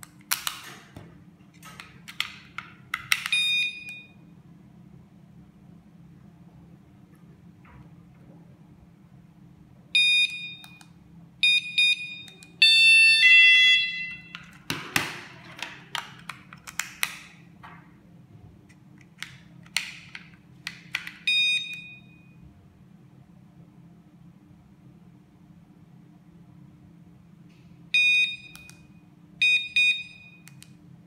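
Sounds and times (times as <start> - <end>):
door alarm beeping: 3.2 - 4.2, 10.0 - 10.8, 11.4 - 14.4, 21.3 - 22.4, 27.9 - 30.6.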